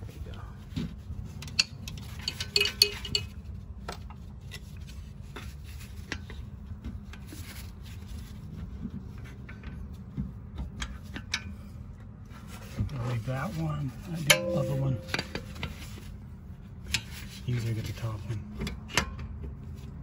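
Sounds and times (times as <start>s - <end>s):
steady low hum: 8.6s - 17.0s.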